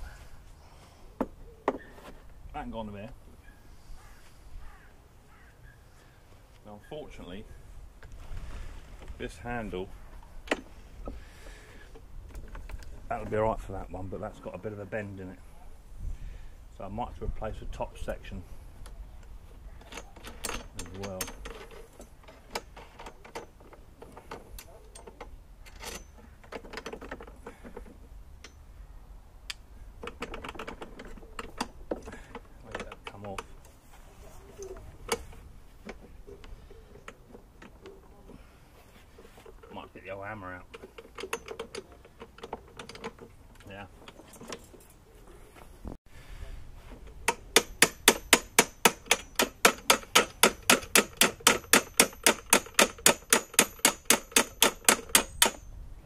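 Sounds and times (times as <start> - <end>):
hand ratchet clicking: 47.3 - 55.7.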